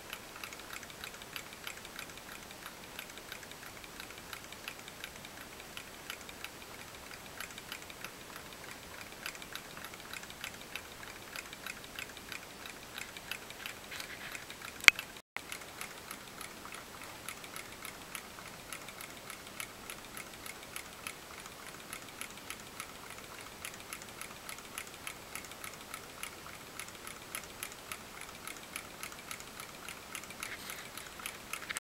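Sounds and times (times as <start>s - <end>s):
model engine ticking: 0.0s - 31.8s.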